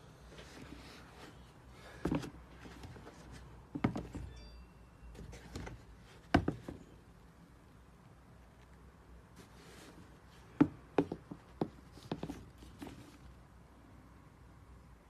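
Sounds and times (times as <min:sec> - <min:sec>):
soft rustling: 0:00.2 - 0:04.2, 0:08.5 - 0:13.5
shoes thumping on a box: 0:03.7 - 0:04.3, 0:05.5 - 0:06.9, 0:10.5 - 0:13.0.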